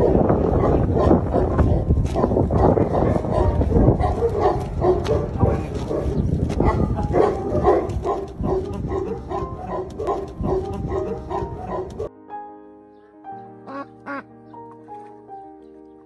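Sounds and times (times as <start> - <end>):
dog barking: 0.0 - 12.1
wind rumble on microphone: 0.0 - 12.1.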